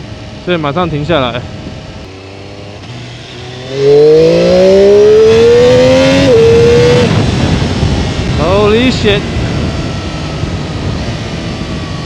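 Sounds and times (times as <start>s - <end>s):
vehicle engine accelerating: 0.0s - 8.5s.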